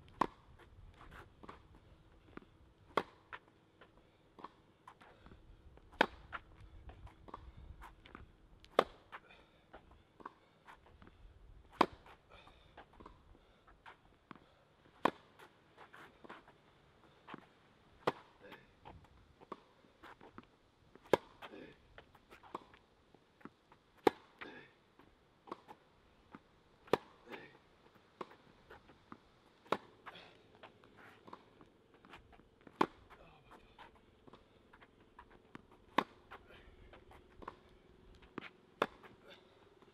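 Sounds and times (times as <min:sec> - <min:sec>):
tennis ball bouncing: 0:00.1 - 0:03.5, 0:05.9 - 0:12.2, 0:13.8 - 0:16.5, 0:17.3 - 0:18.4, 0:19.4 - 0:22.8, 0:23.4 - 0:24.4, 0:25.4 - 0:39.4
racket hitting tennis ball: 0:00.2 - 0:00.5, 0:02.9 - 0:03.4, 0:05.9 - 0:06.5, 0:08.6 - 0:09.2, 0:11.7 - 0:12.2, 0:14.9 - 0:16.5, 0:18.0 - 0:18.4, 0:21.0 - 0:21.5, 0:24.0 - 0:24.4, 0:26.8 - 0:27.6, 0:28.2 - 0:39.4.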